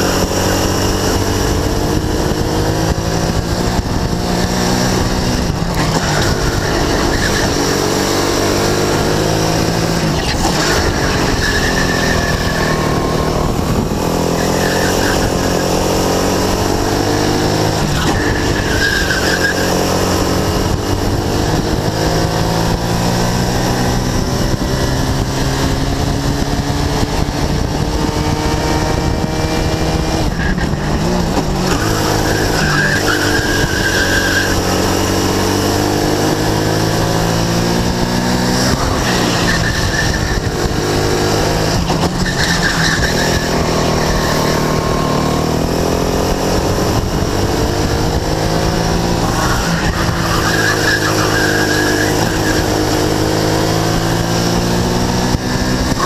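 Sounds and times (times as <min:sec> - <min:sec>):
kart engine revving: 0:00.0 - 0:56.0
tyres squealing: 0:10.1 - 0:13.4, 0:17.9 - 0:20.0, 0:31.6 - 0:35.0, 0:38.6 - 0:40.6, 0:42.0 - 0:45.0, 0:49.2 - 0:52.9.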